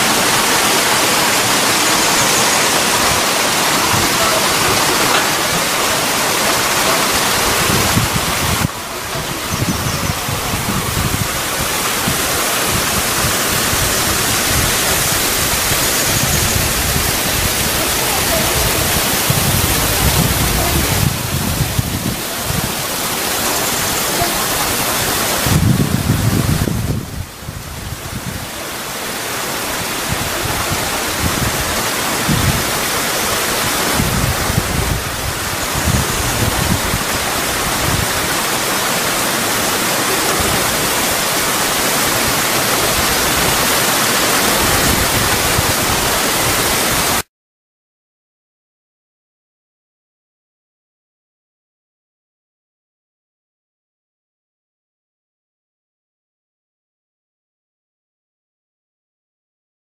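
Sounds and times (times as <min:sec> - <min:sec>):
water rushing: 0:00.0 - 0:47.3
wind buffeting microphone: 0:01.4 - 0:28.6, 0:29.8 - 0:38.4.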